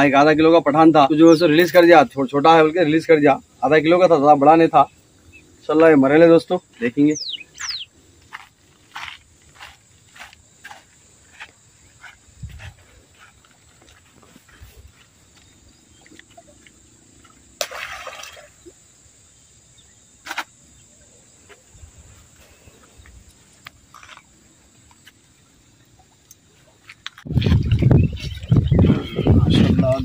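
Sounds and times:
faint outdoor background: 0:00.0 - 0:30.0
splashes at water's edge: 0:17.6 - 0:18.8.

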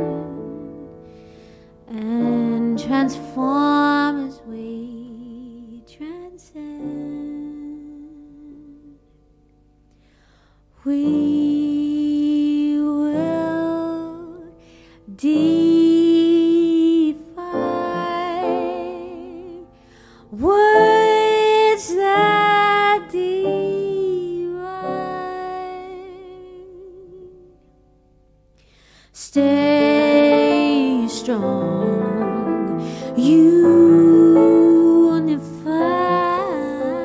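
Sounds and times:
woman singing jazz with vibrato: 0:00.0 - 0:00.9, 0:01.8 - 0:09.0, 0:10.8 - 0:27.6, 0:29.2 - 0:37.0.

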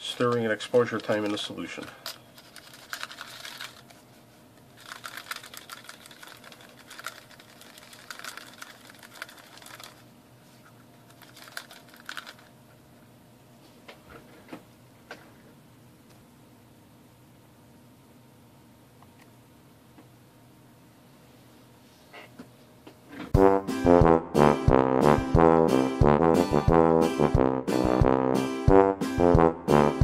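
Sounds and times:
metal parts rattling in liquid: 0:00.1 - 0:03.9, 0:04.8 - 0:10.0, 0:11.1 - 0:12.5.

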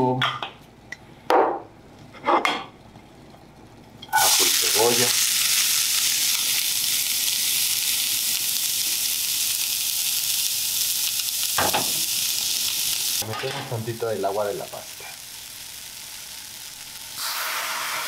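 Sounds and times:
food sizzling in hot oil: 0:04.1 - 0:18.0.

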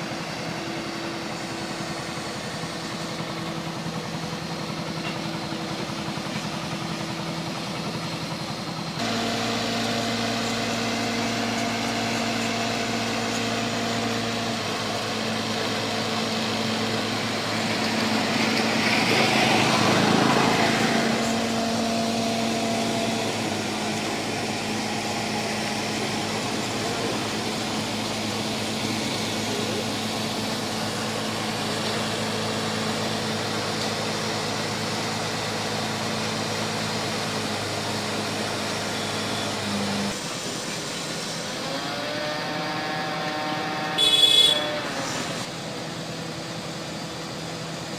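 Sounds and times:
engine idling: 0:00.0 - 0:47.9
broad rushing noise: 0:17.0 - 0:32.6.

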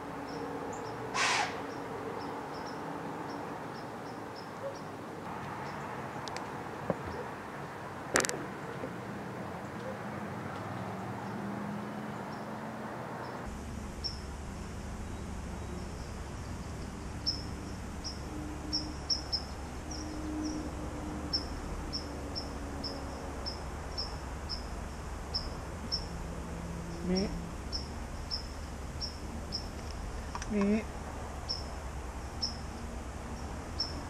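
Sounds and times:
steady low rumble: 0:13.4 - 0:34.0.

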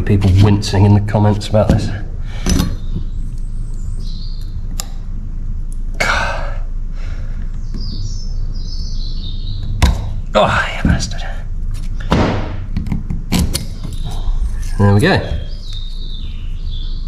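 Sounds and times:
small birds chirping faintly: 0:00.0 - 0:17.0
steady low hum: 0:00.0 - 0:17.0.

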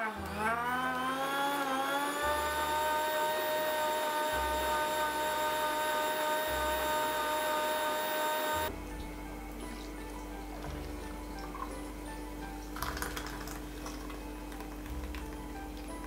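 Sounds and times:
blender motor whine: 0:00.0 - 0:08.7.

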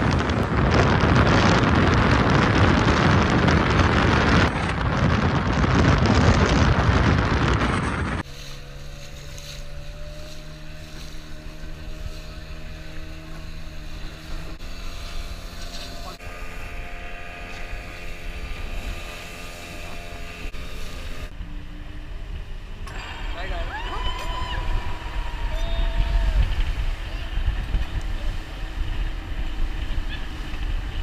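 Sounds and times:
wind rushing over microphone: 0:00.0 - 0:08.7, 0:09.6 - 0:31.0
speedboat engine drone: 0:00.0 - 0:31.0.

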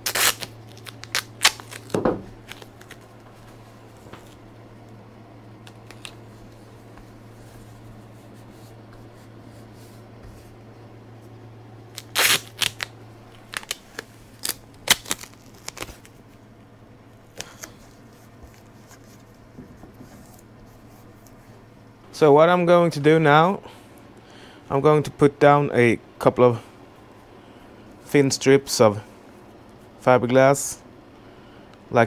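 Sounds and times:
tape ripping off roll: 0:00.0 - 0:03.0, 0:11.9 - 0:16.2
tape crinkling and crackling: 0:00.0 - 0:05.0, 0:05.6 - 0:08.4, 0:11.9 - 0:16.4, 0:17.3 - 0:21.5
low hum: 0:00.0 - 0:24.2.

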